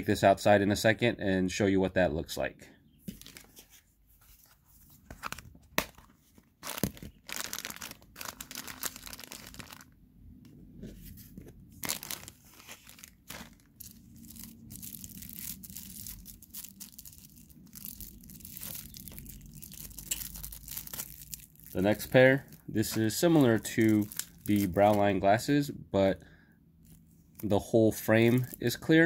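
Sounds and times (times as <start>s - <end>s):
plastic bag crinkling and tearing: 5.2s - 10.0s, 11.8s - 25.2s, 26.8s - 28.9s.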